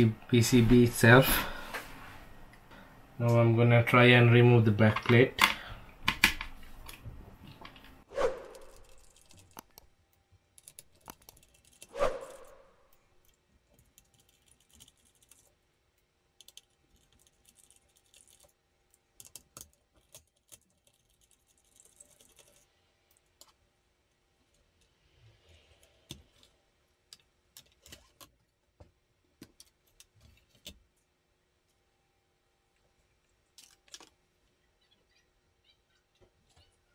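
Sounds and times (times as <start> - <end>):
screws and metal plate clicking: 8.6 - 9.8, 10.6 - 11.9.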